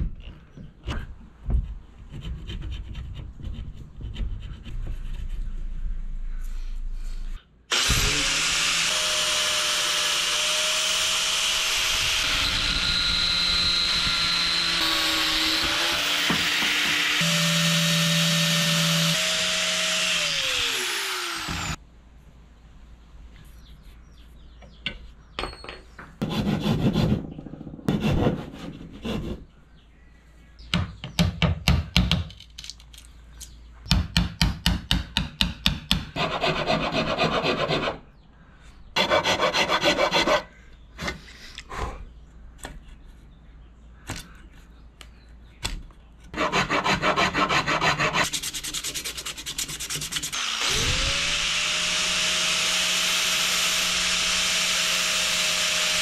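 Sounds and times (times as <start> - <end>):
angle grinder running: 7.7 - 21.8, 50.3 - 56.0
mallet striking chisel into wood: 33.9 - 36.1.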